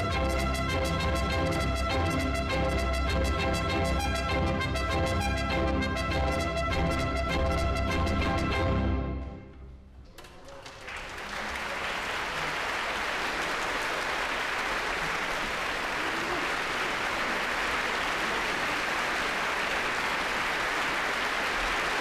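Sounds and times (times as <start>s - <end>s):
audience applauding: 10.2s - 22.0s.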